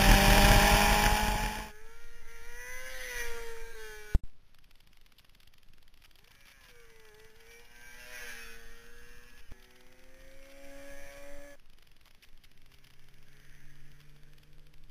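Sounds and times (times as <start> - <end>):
distant motorcycle engine revving: 0.0 - 4.2.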